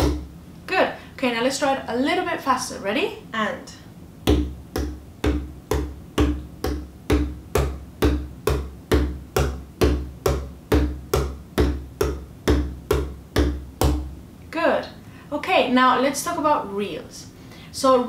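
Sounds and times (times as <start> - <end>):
frame drum struck with tipper: 0.0 - 0.3.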